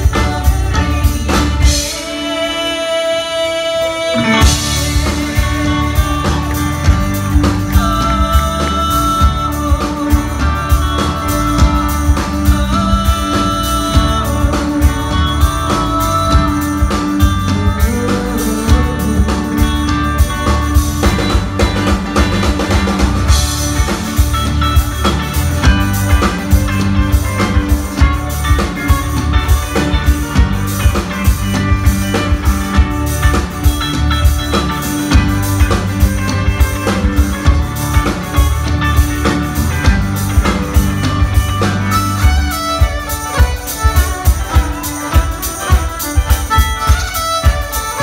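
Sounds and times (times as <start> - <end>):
drum kit beat: 0.0 - 3.1, 3.8 - 48.0
acoustic guitar: 0.0 - 48.0
bass: 0.0 - 48.0
keyboard: 0.0 - 48.0.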